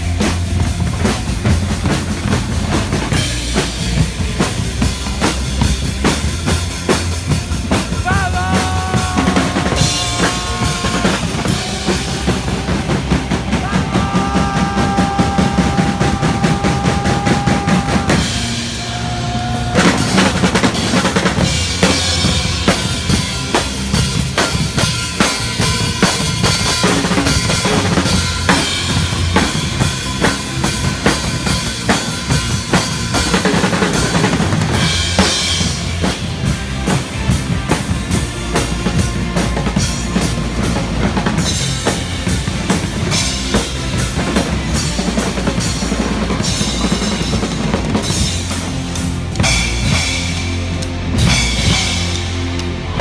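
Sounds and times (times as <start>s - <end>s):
many drum kits playing: 0.0s - 53.0s.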